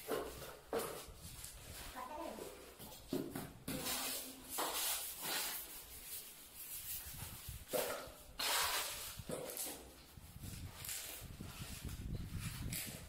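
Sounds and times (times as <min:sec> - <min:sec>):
steel trowel scraping: 0:03.8 - 0:09.9.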